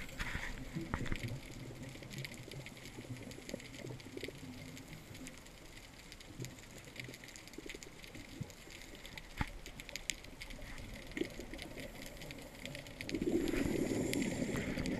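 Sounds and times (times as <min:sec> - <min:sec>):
crackling clicks: 0:00.0 - 0:14.9
underwater low rumble: 0:00.0 - 0:14.9.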